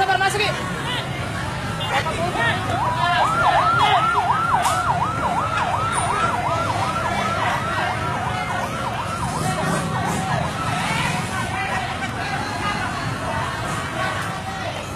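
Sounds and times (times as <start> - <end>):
vehicle engines rumbling: 0.0 - 14.9
police siren yelping: 2.6 - 12.2.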